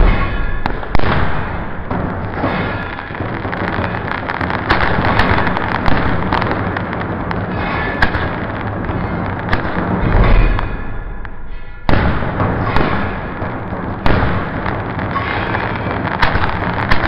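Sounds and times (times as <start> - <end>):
fireworks bursts and crackle: 0.0 - 17.0
sharp firework cracks: 0.0 - 17.0.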